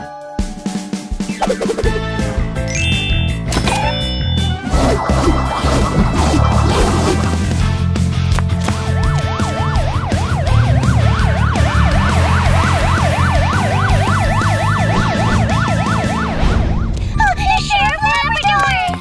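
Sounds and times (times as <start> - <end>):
upbeat music with heavy bass: 1.4 - 16.3
cartoon police siren: 8.9 - 17.0.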